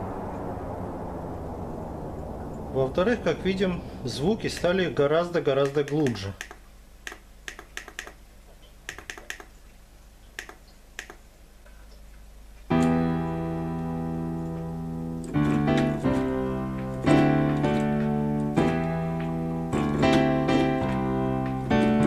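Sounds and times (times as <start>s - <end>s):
synthesizer piano chords: 0.0s - 5.7s, 12.7s - 22.0s
light clicks: 5.6s - 9.5s, 10.3s - 13.0s.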